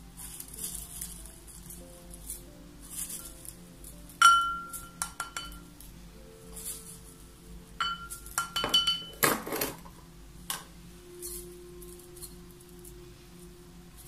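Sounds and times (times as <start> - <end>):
dry scrape of petals: 0.0 - 5.0, 6.3 - 8.4, 11.0 - 14.0
glass and wooden spoon clinking: 4.2 - 5.7, 7.8 - 9.4.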